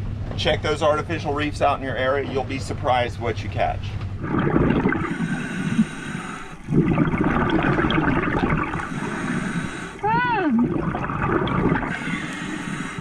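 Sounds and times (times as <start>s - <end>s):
underwater bubbling of exhaled air: 4.2s - 13.0s.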